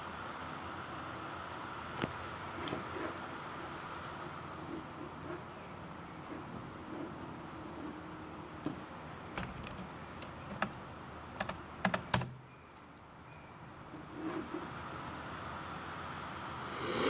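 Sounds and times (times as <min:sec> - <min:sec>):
laptop keyboard keys clicking: 0:09.3 - 0:10.8, 0:11.4 - 0:12.4.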